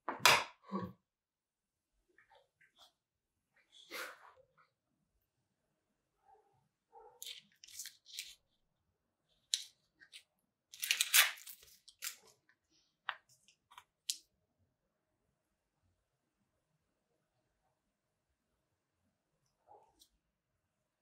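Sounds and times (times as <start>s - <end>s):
paper label tearing: 10.8s - 12.2s.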